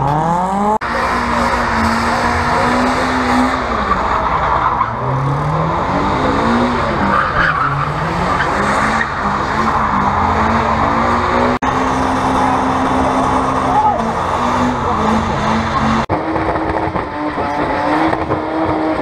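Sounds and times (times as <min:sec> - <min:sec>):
car engine revving: 0:00.0 - 0:19.0
tyres screeching on tarmac: 0:00.8 - 0:11.6.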